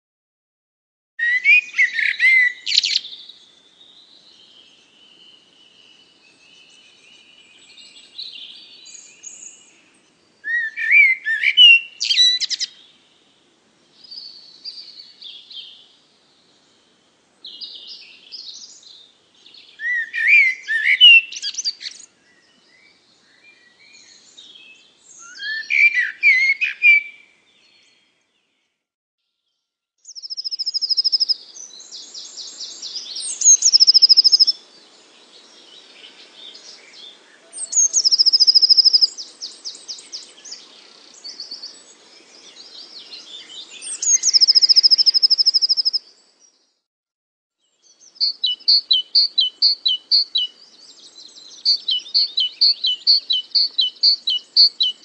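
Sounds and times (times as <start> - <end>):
songbird warbling: 1.2 - 3.4, 10.4 - 12.8, 30.1 - 34.7, 35.4 - 41.8, 42.5 - 46.2, 48.0 - 55.0.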